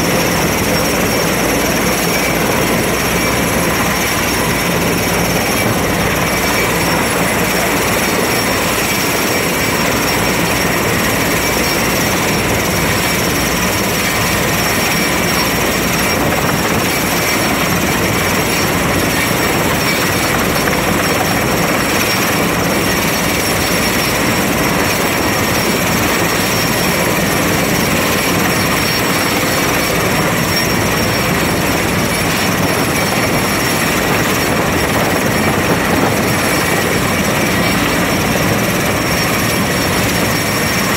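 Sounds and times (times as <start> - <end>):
helicopter hovering: 0.0 - 40.9.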